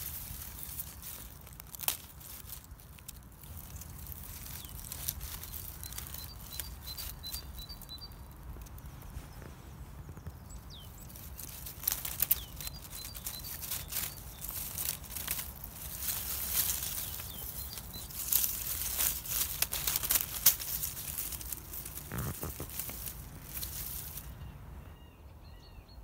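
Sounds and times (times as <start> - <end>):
dry leaves rustling and crackling: 0.0 - 24.8
low wind rumble: 0.0 - 26.0
faint bird chirps: 4.4 - 15.0, 20.7 - 26.0.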